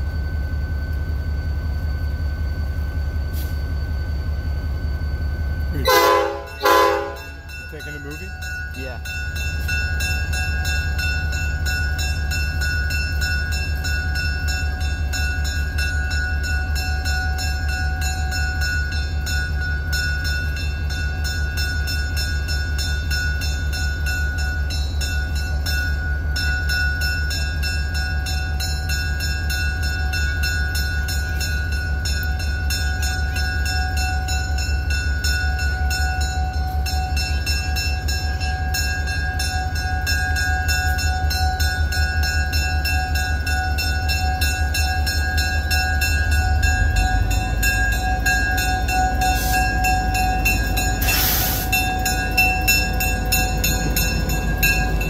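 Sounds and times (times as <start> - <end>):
diesel locomotive engine throbbing: 0.0 - 55.0.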